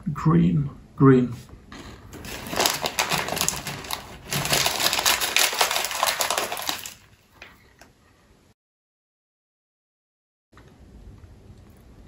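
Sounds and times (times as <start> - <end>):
candy bag crinkling and rustling: 1.8 - 7.6.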